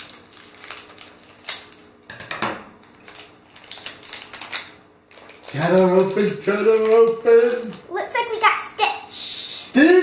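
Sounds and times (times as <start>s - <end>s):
wrapping crinkling: 0.0s - 2.1s, 2.8s - 8.4s.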